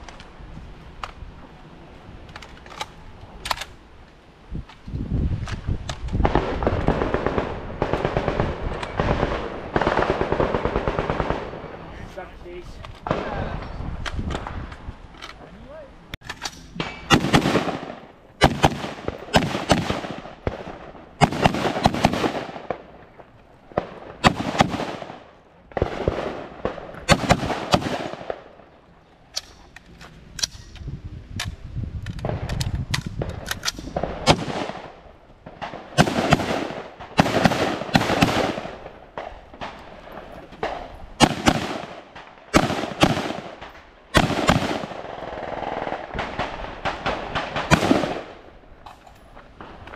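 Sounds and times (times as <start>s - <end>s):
rifle shots with echo: 6.2s - 11.9s, 16.8s - 28.7s, 33.2s - 48.6s.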